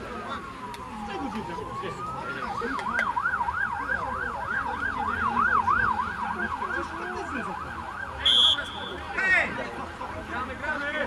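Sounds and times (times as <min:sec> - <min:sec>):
emergency siren yelping: 0:00.8 - 0:09.2.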